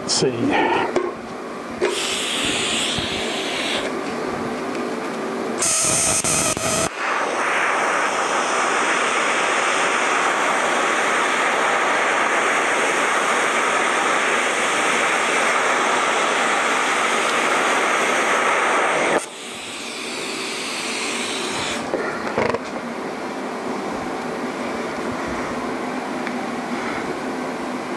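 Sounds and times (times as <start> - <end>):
welding arc hissing: 1.8 - 4.0, 5.6 - 21.9.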